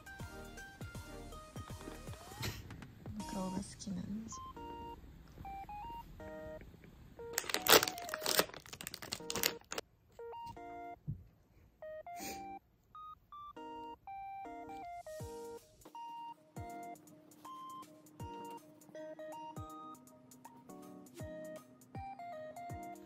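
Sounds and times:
plastic packaging crinkling: 0:07.3 - 0:09.8
electronic beeping melody: 0:11.8 - 0:20.1.

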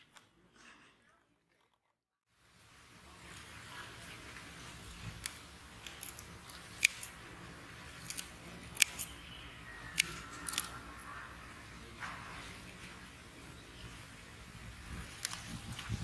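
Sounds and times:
scissors snipping: 0:05.2 - 0:07.2, 0:07.9 - 0:09.2, 0:09.9 - 0:10.8, 0:15.1 - 0:15.8.

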